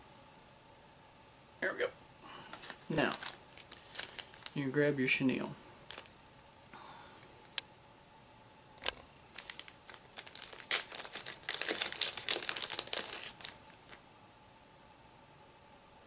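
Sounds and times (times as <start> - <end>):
plastic bag crinkling: 2.4 - 6.1, 8.8 - 14.0.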